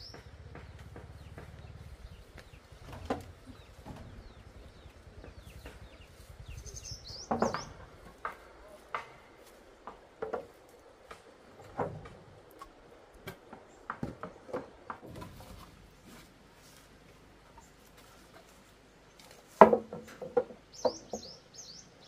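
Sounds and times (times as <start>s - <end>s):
bird chirping: 0.0s - 8.8s, 20.6s - 22.0s
knocks and taps: 7.3s - 9.2s.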